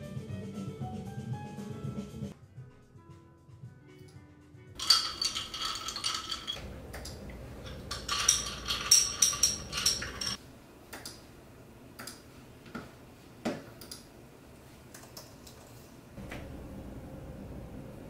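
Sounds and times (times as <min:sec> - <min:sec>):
glass straw clinking in glass: 0:04.8 - 0:06.7, 0:07.6 - 0:10.4.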